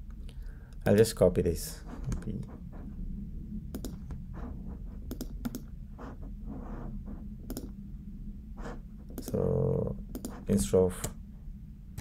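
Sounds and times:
steady low hum: 0.0 - 12.0
computer mouse clicks: 3.7 - 4.2, 5.1 - 5.7, 7.5 - 7.7, 9.1 - 9.4, 10.1 - 10.4.

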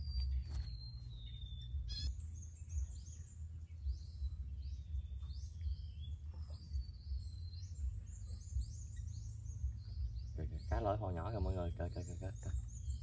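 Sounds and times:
low rumbling background noise: 0.0 - 13.0
small birds chirping: 0.0 - 13.0.

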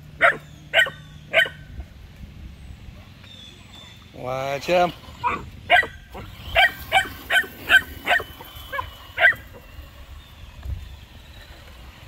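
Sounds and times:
puppy yipping and barking: 0.2 - 1.6, 5.2 - 9.6.

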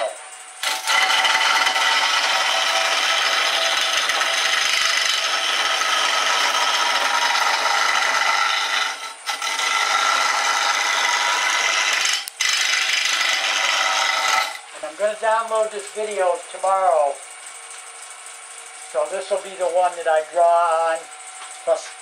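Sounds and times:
wood lathe cutting: 0.6 - 17.2.

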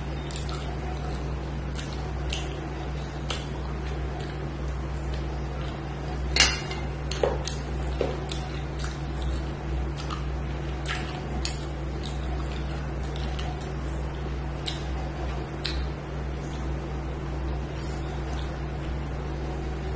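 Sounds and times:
steady low hum: 0.0 - 19.9
wet mouth eating sounds: 7.0 - 16.8.

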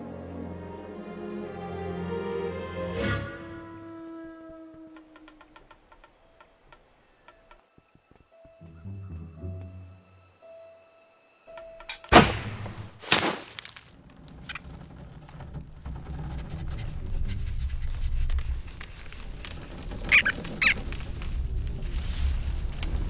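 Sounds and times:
low rumble: 14.0 - 23.0
short squeaks: 19.2 - 20.9.

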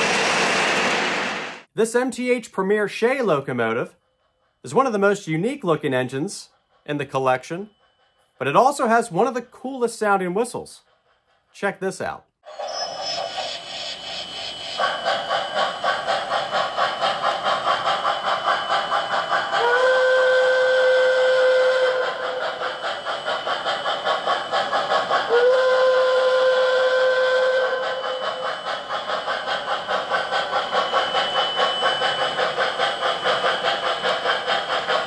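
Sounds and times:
steam locomotive chuffing: 0.0 - 35.0
train whistle blasts: 19.6 - 22.4, 25.3 - 28.4.

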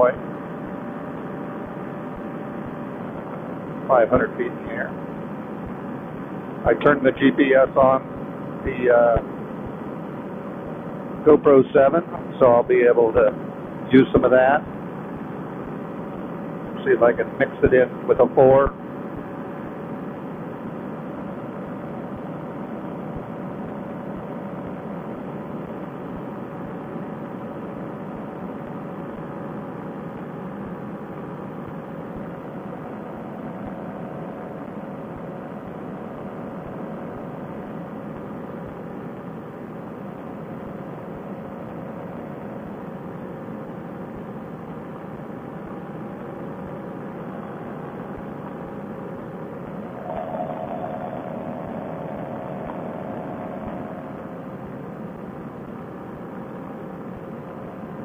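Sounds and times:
paramotor engine droning: 49.8 - 56.4.

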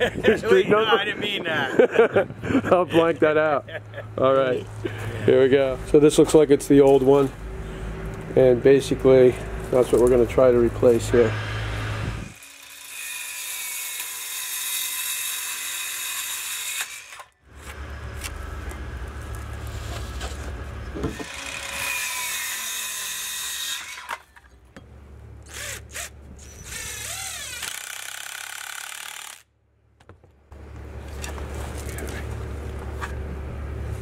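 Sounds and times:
circular saw cutting wood: 10.1 - 18.8, 19.6 - 24.5, 25.5 - 29.5
power tool motor wavering: 11.0 - 20.1, 21.0 - 24.4, 25.4 - 29.5.

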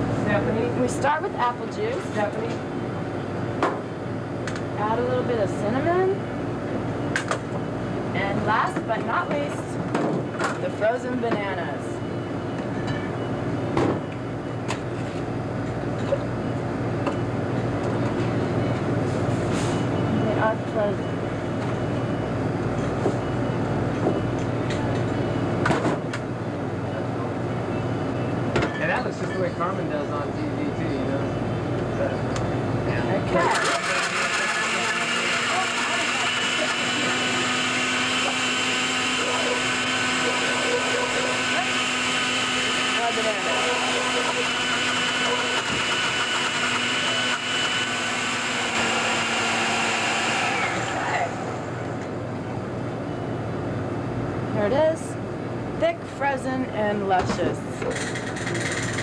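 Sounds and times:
low machine hum: 0.0 - 59.0
blender motor running: 33.3 - 51.9.

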